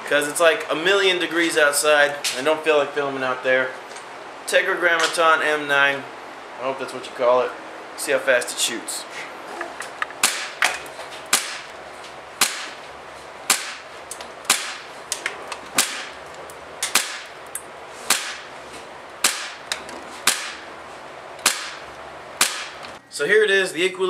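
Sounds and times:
airsoft pistol shots: 10.2s - 10.6s, 11.3s - 11.7s, 12.4s - 12.8s, 13.5s - 13.8s, 14.5s - 14.9s, 15.8s - 16.1s, 16.8s - 17.3s, 18.1s - 18.5s, 19.2s - 19.6s, 20.2s - 20.7s, 21.4s - 21.8s, 22.4s - 22.8s.

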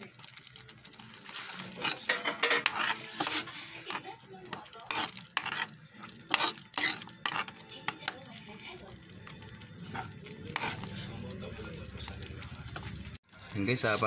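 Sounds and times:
sauce sizzling: 0.0s - 14.0s
metal ladle scraping a pan: 1.1s - 8.2s, 9.2s - 11.3s.

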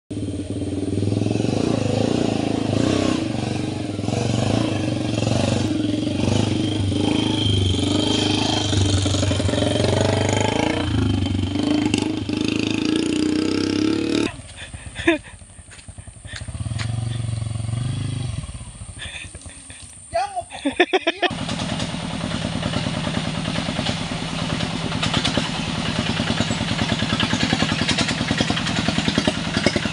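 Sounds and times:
small motorcycle engine revving: 0.1s - 19.9s, 21.1s - 29.9s.

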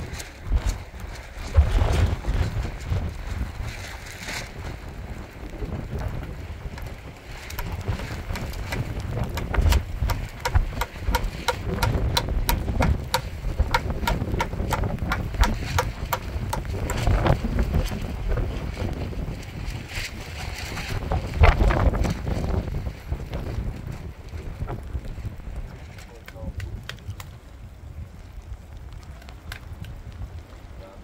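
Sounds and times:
wind buffeting microphone: 0.0s - 31.0s
sharp clicks or taps: 9.3s - 17.0s.

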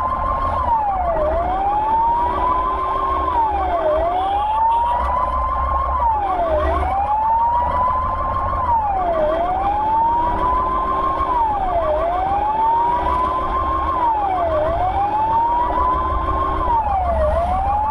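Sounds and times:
ambulance siren wailing: 0.0s - 17.9s
engine and road rumble: 0.0s - 17.9s
fast repeating siren tone: 0.0s - 17.9s.

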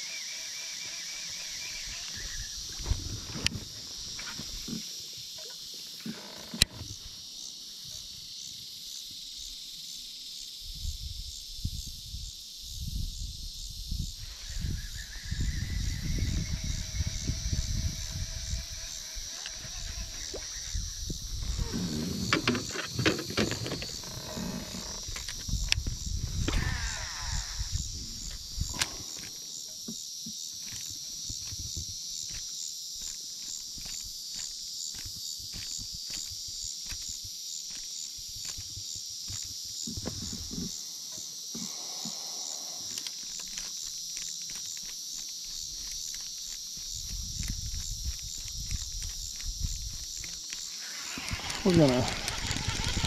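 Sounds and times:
high-pitched insect chorus: 0.0s - 53.0s
small clicks: 42.9s - 53.0s.

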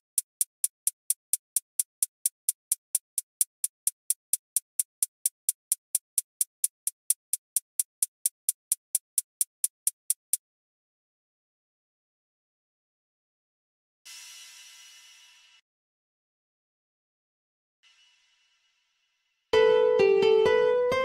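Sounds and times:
drum machine hi-hat ticks: 0.0s - 10.4s.

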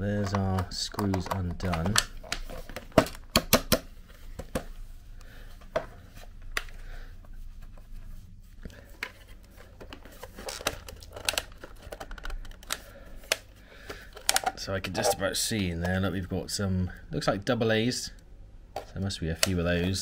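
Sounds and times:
plastic casing clicks and knocks: 0.2s - 4.7s, 9.8s - 14.6s.

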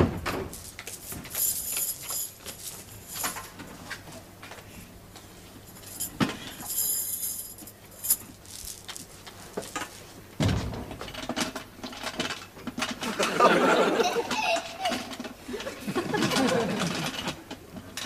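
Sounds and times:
light metallic jingling: 1.3s - 3.5s, 5.7s - 8.9s.

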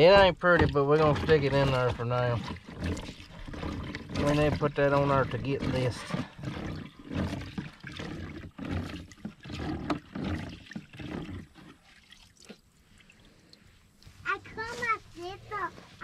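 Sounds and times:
liquid sloshing and splashing: 0.0s - 16.0s.

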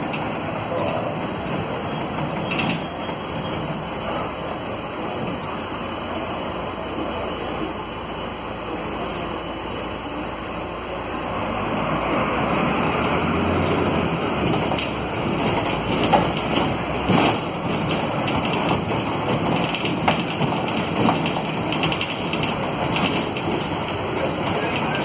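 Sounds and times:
bus diesel engine rumble: 0.0s - 25.0s
road noise: 0.0s - 25.0s
interior rattles: 14.2s - 25.0s.

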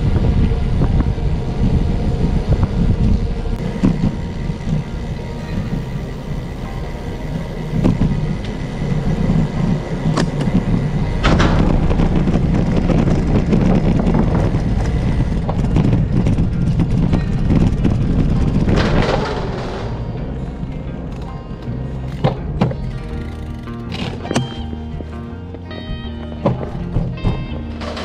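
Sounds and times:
wind noise on microphone: 0.0s - 20.7s
bicycle tyre rumble: 0.0s - 28.0s.

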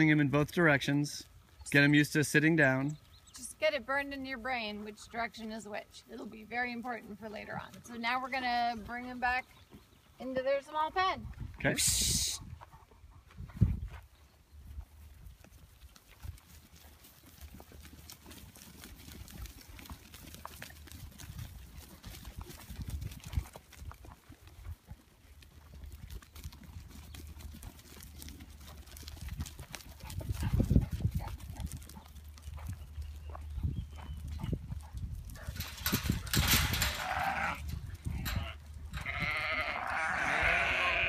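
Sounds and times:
sheep hooves on dry ground: 0.0s - 11.8s, 12.4s - 41.0s
low rumbling bumps: 30.2s - 39.4s.

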